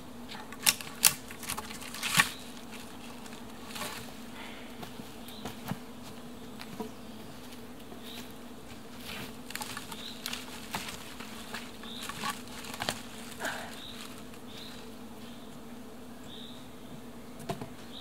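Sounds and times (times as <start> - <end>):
buzzing insect hum: 0.0 - 18.0
sticks and branches clicking: 0.3 - 4.1, 9.0 - 14.9.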